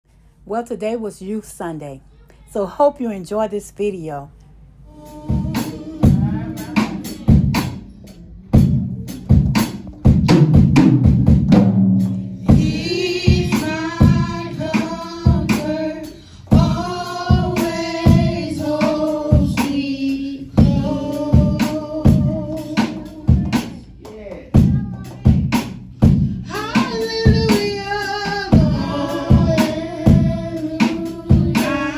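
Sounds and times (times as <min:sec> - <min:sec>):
woman singing into microphone: 0:04.9 - 0:07.1, 0:26.5 - 0:31.9
steady drum beat: 0:04.9 - 0:31.9.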